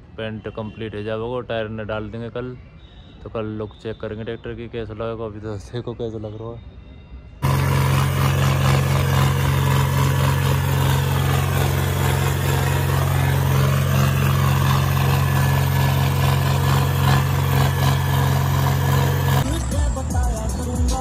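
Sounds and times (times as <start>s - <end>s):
tractor diesel engine running: 7.4s - 20.8s.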